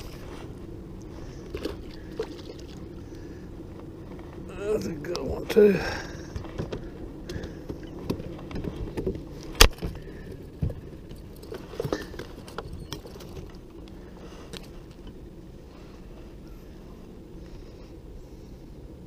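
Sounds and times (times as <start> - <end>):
low steady background rumble: 0.0 - 19.0
fishing gear clicks and knocks: 6.3 - 15.2.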